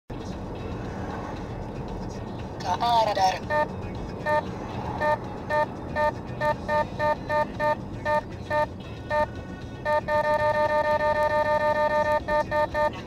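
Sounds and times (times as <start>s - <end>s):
car cabin and road noise: 0.1s - 13.0s
radar detector beeping: 3.5s - 3.7s, 5.0s - 13.0s.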